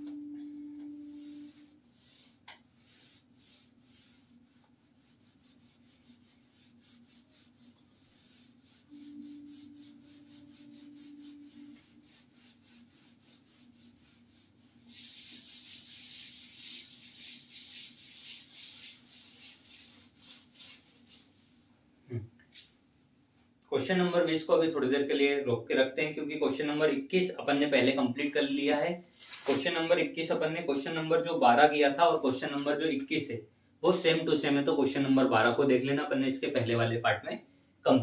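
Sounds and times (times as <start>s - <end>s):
steady low hum: 0.0s - 16.4s
duster wiping a whiteboard: 0.0s - 21.7s, 28.4s - 31.3s, 31.9s - 33.2s.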